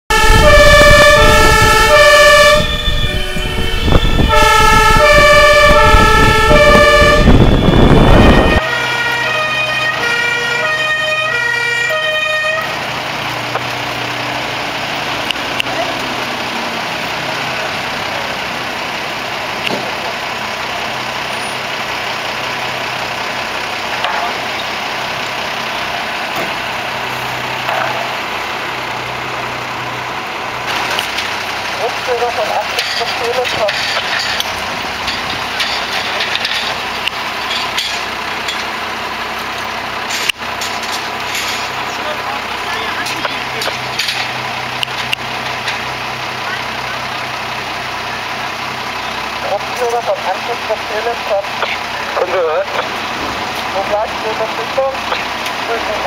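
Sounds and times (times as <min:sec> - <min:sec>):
two-tone fire engine siren: 0:00.1 - 0:18.8, 0:49.0 - 0:56.0
engine and road noise: 0:00.1 - 0:56.0
fire engine idling: 0:00.1 - 0:56.0.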